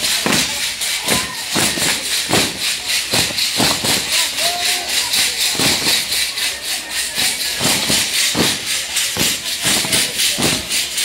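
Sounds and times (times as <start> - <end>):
rattles with metal jingles shaken: 0.0 - 11.0.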